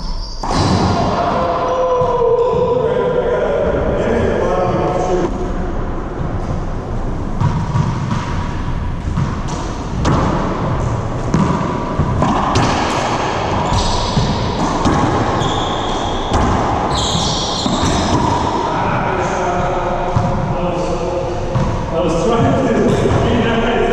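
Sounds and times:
sneakers squeaking on floor: 0:00.0 - 0:01.0, 0:07.3 - 0:18.7.

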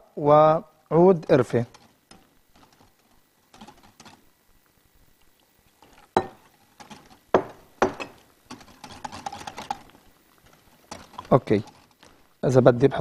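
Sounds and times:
utensils and glassware clinking: 0:05.8 - 0:09.9, 0:10.9 - 0:12.0.

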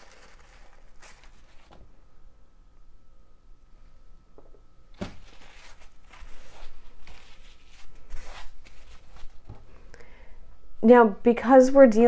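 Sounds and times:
paper towel rustling on plastic: 0:00.0 - 0:01.8, 0:05.0 - 0:09.8.

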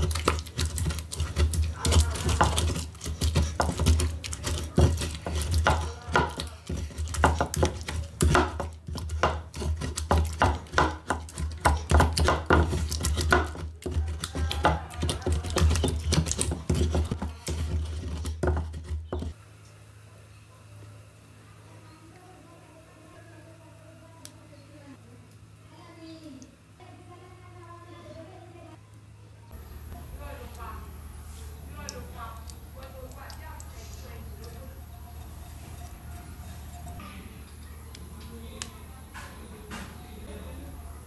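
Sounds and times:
wooden pestle grinding in bowl: 0:00.0 - 0:19.4, 0:34.2 - 0:37.0.

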